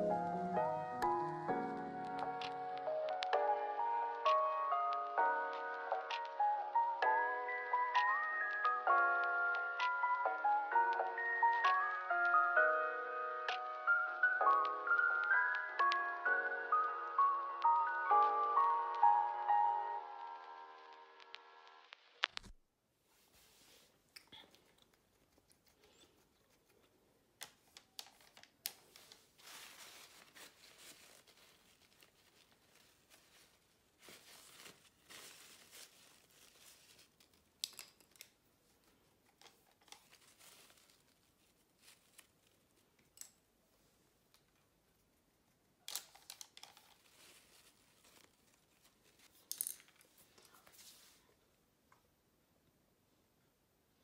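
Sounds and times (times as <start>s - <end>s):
paper crinkling: 23.3s - 43.2s, 45.8s - 51.4s.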